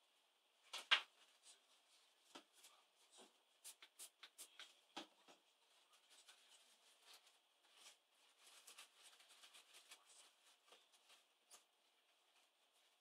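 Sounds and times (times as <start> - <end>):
cotton swab scratching and rubbing: 3.6 - 4.7.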